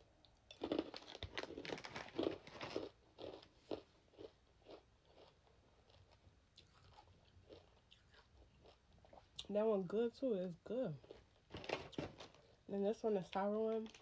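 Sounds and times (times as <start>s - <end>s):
candy crunching: 0.5s - 8.8s.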